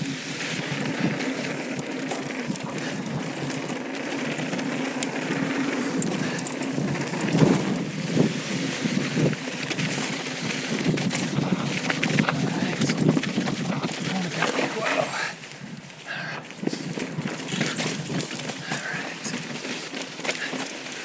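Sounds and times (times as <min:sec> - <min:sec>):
bike rattling: 0:00.0 - 0:21.0
bike tyres on dirt and pavers: 0:00.0 - 0:21.0
bike knocking over bumps: 0:00.6 - 0:07.8
wind on microphone: 0:05.3 - 0:14.4.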